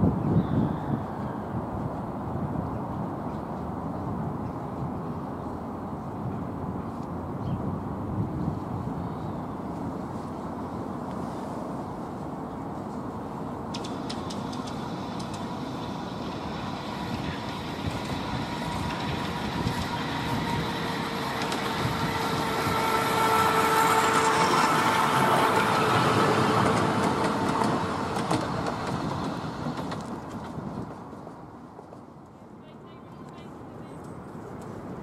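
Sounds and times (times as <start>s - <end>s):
miniature train wheels rumbling: 13.7s - 32.1s.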